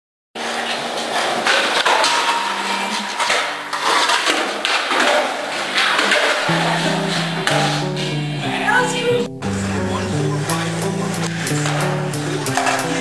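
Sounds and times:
skateboard rolling on hard floor: 0.4 - 8.2, 10.6 - 13.0.

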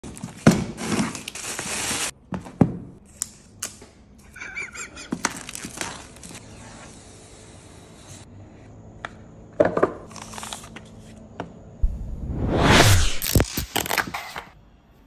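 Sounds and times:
plastic wrap crackling and rustling: 0.0 - 2.1, 5.2 - 6.4.

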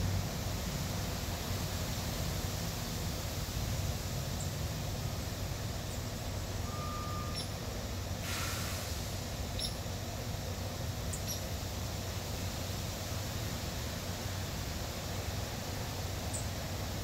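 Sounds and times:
low outdoor rumble and hiss: 0.0 - 17.0
small birds chirping: 11.1 - 11.5.

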